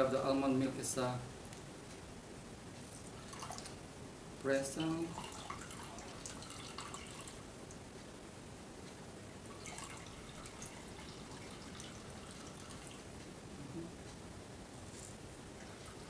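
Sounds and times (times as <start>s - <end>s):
liquid trickling and dripping: 3.0s - 3.8s, 4.5s - 7.8s, 9.4s - 13.1s.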